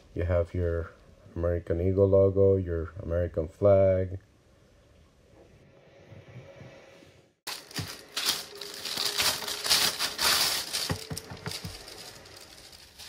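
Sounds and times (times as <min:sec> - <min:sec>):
plastic packaging crinkling: 0:07.5 - 0:13.0.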